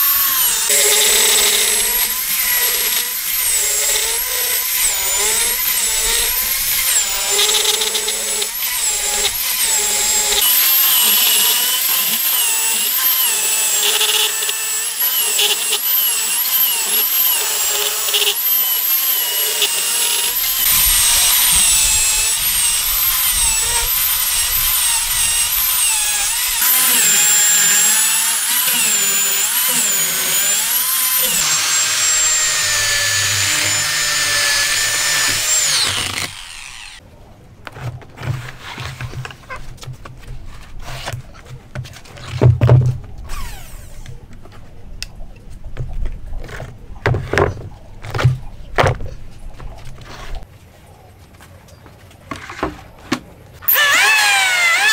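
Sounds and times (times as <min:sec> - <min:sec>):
electric chainsaw cutting log: 0:00.0 - 0:37.0, 0:43.3 - 0:44.1, 0:53.6 - 0:54.9.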